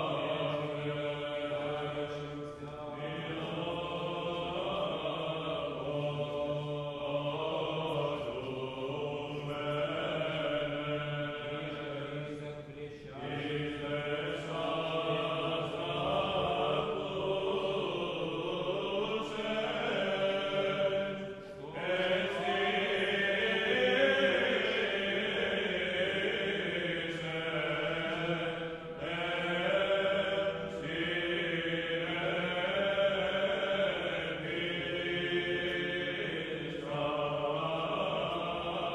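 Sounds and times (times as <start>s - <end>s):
slow vocal chanting: 0.0s - 38.9s.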